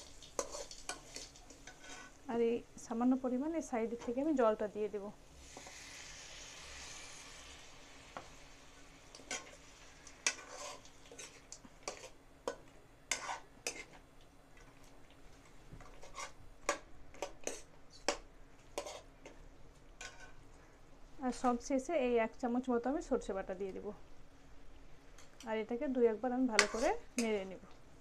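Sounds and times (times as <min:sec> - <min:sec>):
metal spatula scraping a pan: 0:00.0 - 0:02.2, 0:09.1 - 0:12.2, 0:13.1 - 0:14.0, 0:15.8 - 0:16.4, 0:17.2 - 0:17.7, 0:18.8 - 0:19.1, 0:20.0 - 0:20.4, 0:26.5 - 0:27.4.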